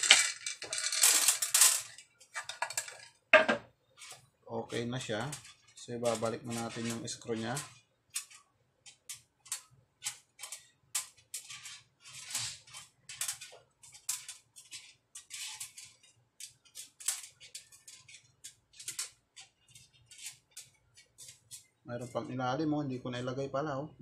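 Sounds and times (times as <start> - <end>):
small screws clicking on metal: 0.0 - 3.2, 4.0 - 21.8.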